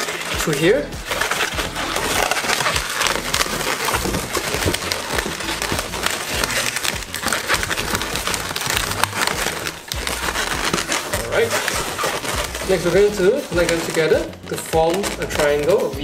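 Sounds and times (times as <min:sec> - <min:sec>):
balloons squeaking and rubbing: 0:00.0 - 0:16.0.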